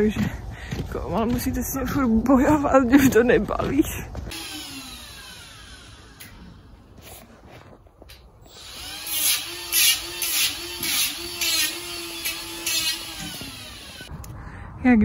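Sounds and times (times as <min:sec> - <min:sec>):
power tool motor hum: 0:04.3 - 0:06.9, 0:08.4 - 0:14.1
tool rasping on hoof: 0:08.5 - 0:14.1.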